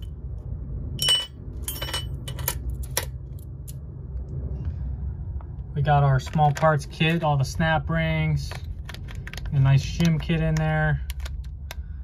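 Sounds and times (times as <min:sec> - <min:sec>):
steady low hum: 0:00.0 - 0:12.0
metal bearings clinking: 0:01.0 - 0:03.5.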